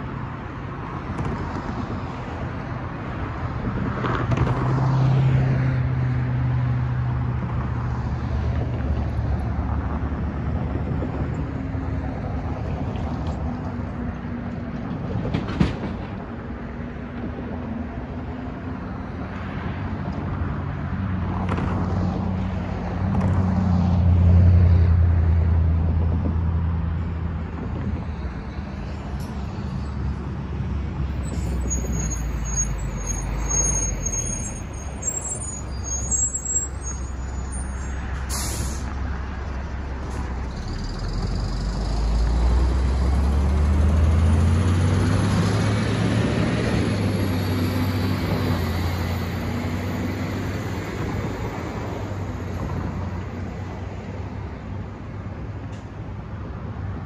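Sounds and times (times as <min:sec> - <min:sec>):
passing car engines: 0:00.0 - 0:57.0
air brake hiss: 0:38.2 - 0:39.0.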